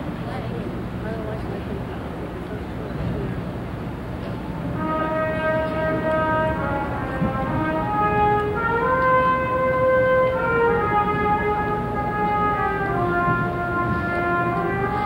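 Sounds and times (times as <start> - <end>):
slow instrumental music: 4.8 - 15.0.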